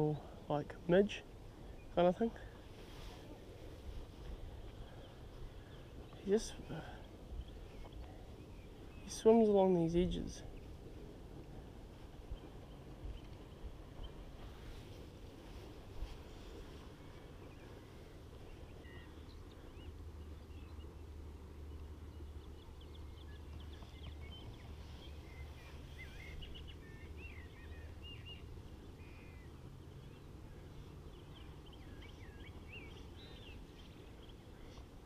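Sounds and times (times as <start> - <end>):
low steady rumble: 0.0 - 35.0
small birds chirping: 0.0 - 35.0.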